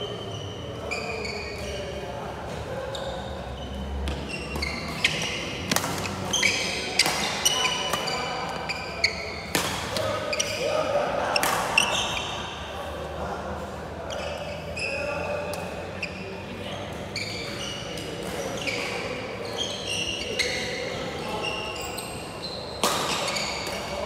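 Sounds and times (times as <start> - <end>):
shoes squeaking on wooden floor: 2.9 - 9.3
racket hitting shuttlecock: 4.0 - 8.7, 9.4 - 10.2, 22.8 - 23.9.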